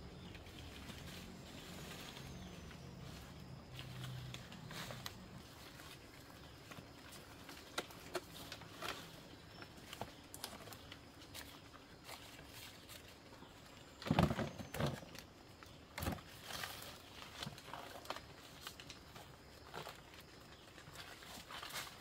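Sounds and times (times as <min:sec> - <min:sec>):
footsteps in dry leaves: 0:00.0 - 0:13.6
plants rustling: 0:00.0 - 0:22.0.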